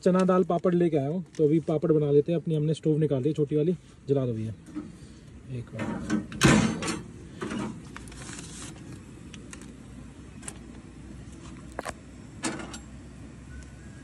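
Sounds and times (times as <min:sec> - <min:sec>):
camp stove burning: 0:03.4 - 0:14.0.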